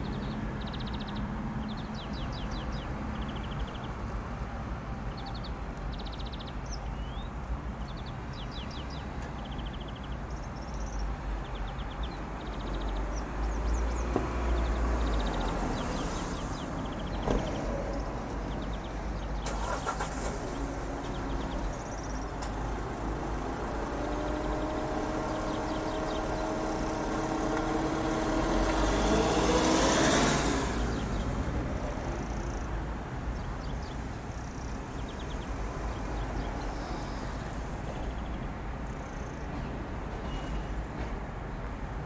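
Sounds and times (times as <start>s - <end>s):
motor vehicle passing: 12.9s - 32.7s.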